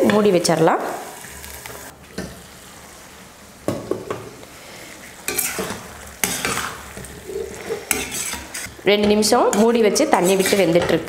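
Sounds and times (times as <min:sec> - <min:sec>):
liver sizzling: 0:00.0 - 0:11.0
spatula scraping pan: 0:04.6 - 0:11.0.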